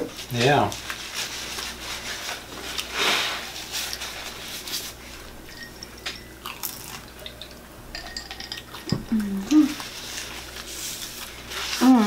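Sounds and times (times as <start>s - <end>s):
chewing and crunching crispy crust: 0.0s - 5.2s, 6.4s - 7.5s, 8.7s - 12.0s.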